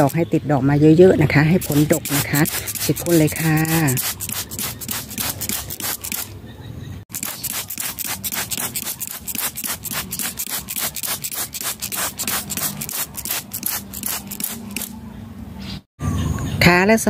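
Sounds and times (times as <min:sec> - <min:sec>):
spray bottle hissing: 0:01.5 - 0:06.3, 0:07.1 - 0:14.9.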